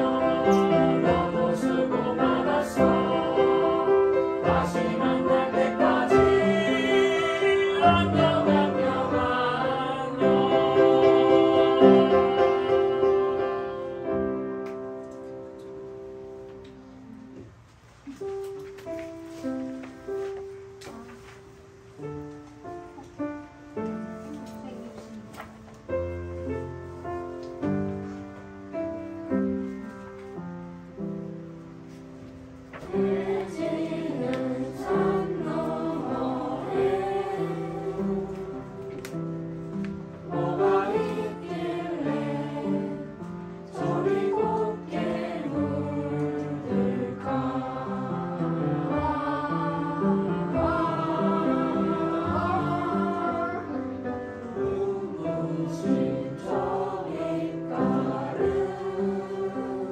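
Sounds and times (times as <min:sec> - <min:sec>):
children and adults singing: 0:00.0 - 0:14.5, 0:32.8 - 0:59.9
upright piano: 0:00.0 - 0:59.9.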